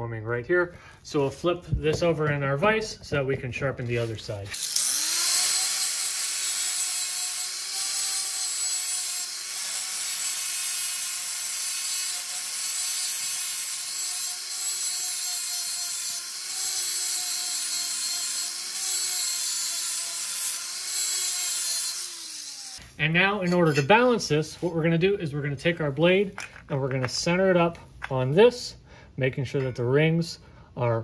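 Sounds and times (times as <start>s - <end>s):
angle grinder grinding steel: 4.0s - 24.1s.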